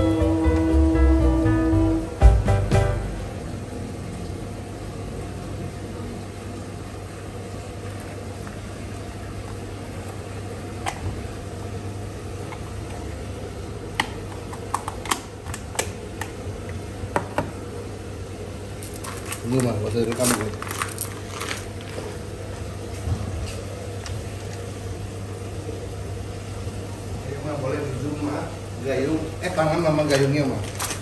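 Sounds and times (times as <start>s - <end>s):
low steady hum: 0.0s - 19.4s.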